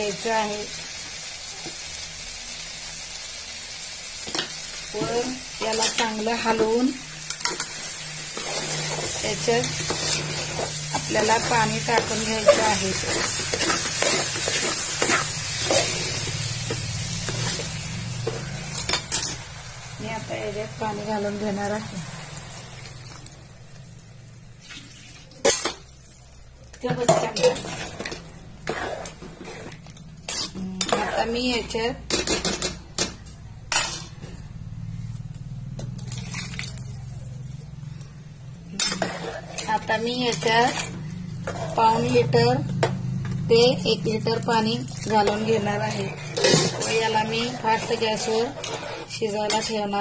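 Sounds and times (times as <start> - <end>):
sizzling in a pot: 0.0 - 50.0
metal ladle scraping a pot: 8.3 - 19.4, 27.2 - 31.6, 38.8 - 42.2, 45.0 - 49.9
water pouring into pot: 36.0 - 37.0.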